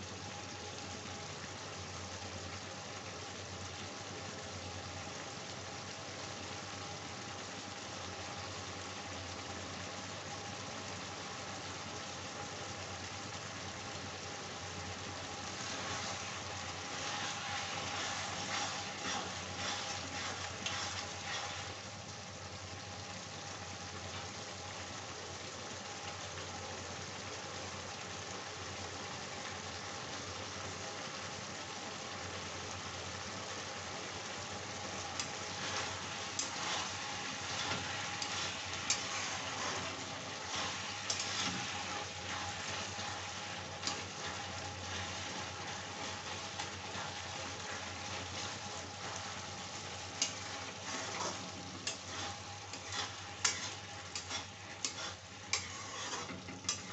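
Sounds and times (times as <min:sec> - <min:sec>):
vegetables sizzling in oil: 0:00.0 - 0:56.9
spatula scraping a pan: 0:15.4 - 0:21.8, 0:35.1 - 0:56.9.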